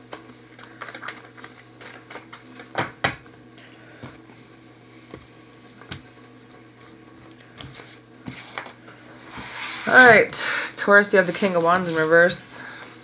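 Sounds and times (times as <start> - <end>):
cards rustling: 0.1 - 2.7.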